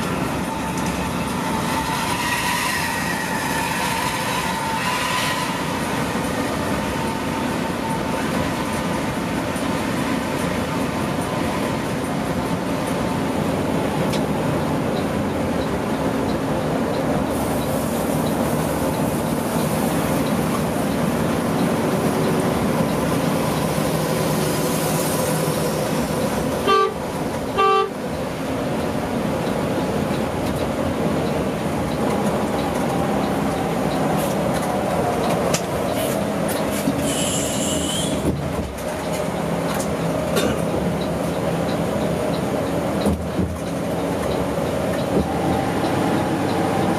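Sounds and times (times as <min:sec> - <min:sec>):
coach engine and road drone: 0:00.0 - 0:46.9
horn toots: 0:26.6 - 0:27.0, 0:27.6 - 0:28.0.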